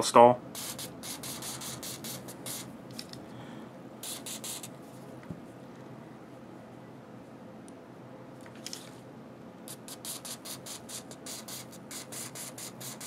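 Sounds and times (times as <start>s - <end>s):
aerosol can spraying: 0.6s - 2.7s, 4.0s - 4.7s, 9.7s - 13.0s.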